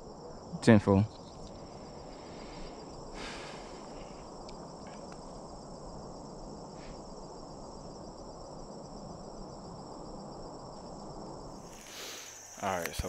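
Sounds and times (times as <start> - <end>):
crickets chirping: 0.0 - 13.0
faint rustle: 1.4 - 5.6, 11.6 - 13.0.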